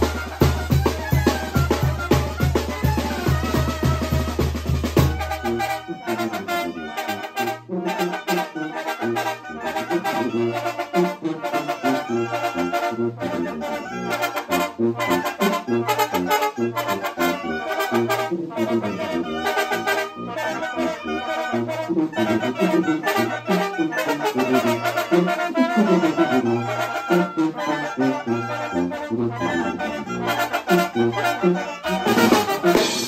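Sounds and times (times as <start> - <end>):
brass band playing dance tune: 0.0 - 33.0
tuba bass line: 0.0 - 33.0.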